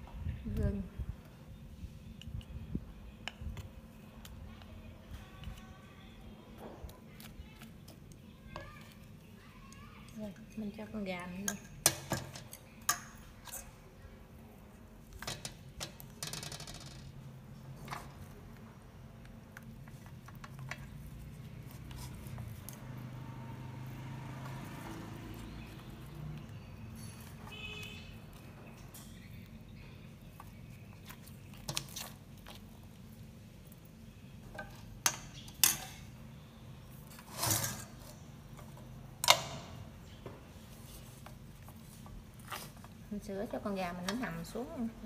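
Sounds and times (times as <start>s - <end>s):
utensils clinking on steel pot: 10.2s - 13.8s, 34.6s - 36.1s
scraping rustle: 19.9s - 23.2s, 37.0s - 38.4s, 40.6s - 43.2s.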